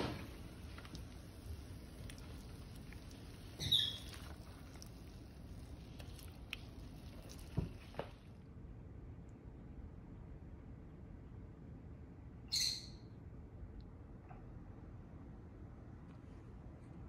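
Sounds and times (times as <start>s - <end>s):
spatula scraping frying pan: 0.0s - 5.0s.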